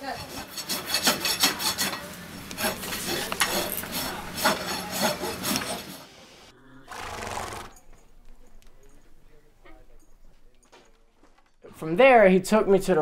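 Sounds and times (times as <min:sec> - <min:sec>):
rasp filing a hoof: 0:00.0 - 0:06.0.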